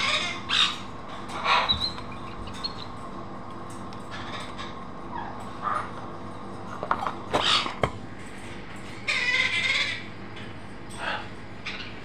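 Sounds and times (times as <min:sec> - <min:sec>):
cockatoo squawking: 0:00.0 - 0:00.8, 0:09.1 - 0:10.1.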